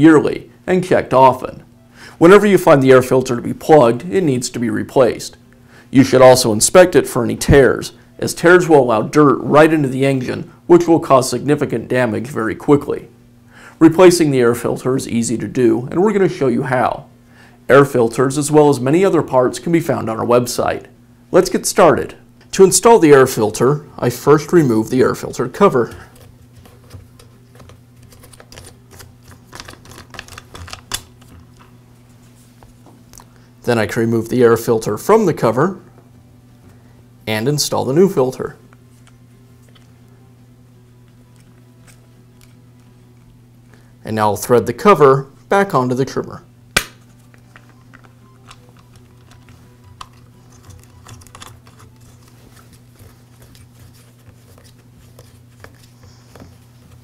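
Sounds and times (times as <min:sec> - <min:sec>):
plastic cover clicking and rubbing: 0:26.2 - 0:31.4.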